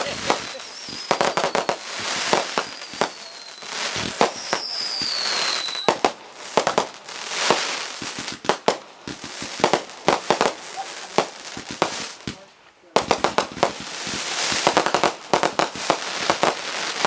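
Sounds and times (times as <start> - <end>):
falling firework whistle: 0.0 - 6.0
fireworks bangs and crackling: 0.0 - 17.0.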